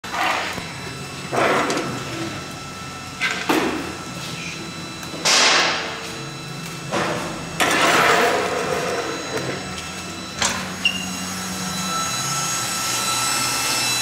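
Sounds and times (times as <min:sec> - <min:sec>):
steady machine hum: 0:00.0 - 0:14.0.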